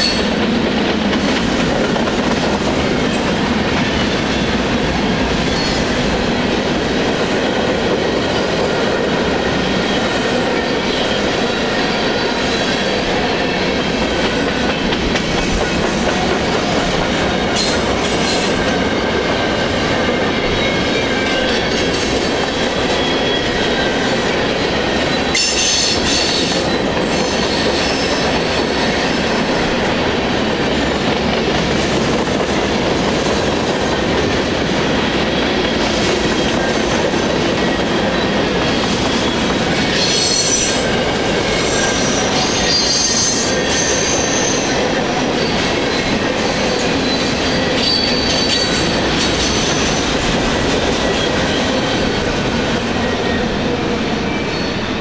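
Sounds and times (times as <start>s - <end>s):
train wheels rumbling on rail: 0.0s - 55.0s
wheel squeals: 46.7s - 50.0s.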